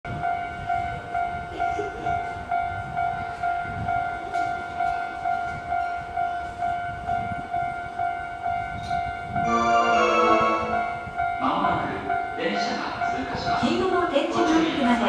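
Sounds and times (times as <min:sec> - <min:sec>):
level crossing electronic bell: 0:09.4 - 0:11.1.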